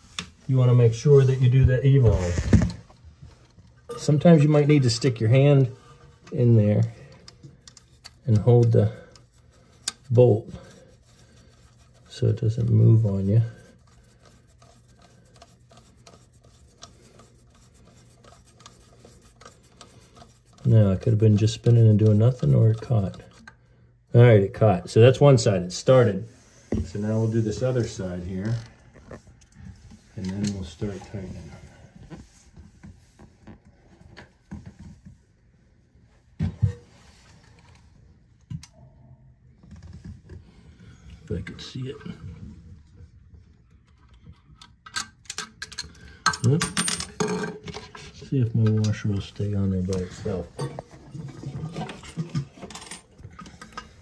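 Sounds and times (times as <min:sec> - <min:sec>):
nut scraping and clicking on bolt: 0:44.0 - 0:48.0.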